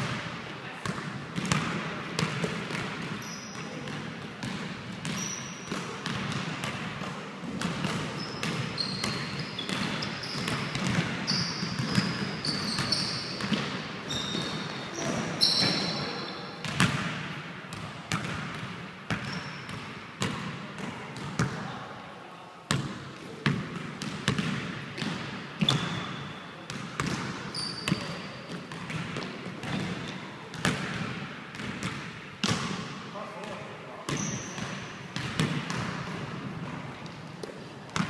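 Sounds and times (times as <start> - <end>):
shoes squeaking on floor: 3.2 - 3.8, 5.1 - 5.8, 8.1 - 16.4, 19.2 - 19.7, 25.6 - 26.5, 27.5 - 28.3, 34.1 - 34.8
basketball bouncing on wood floor: 4.4 - 14.6, 16.6 - 21.6, 22.7 - 26.0, 26.7 - 32.8.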